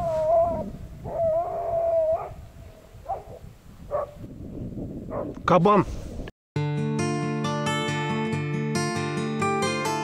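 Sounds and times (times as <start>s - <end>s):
dog yelping: 0.0s - 2.4s.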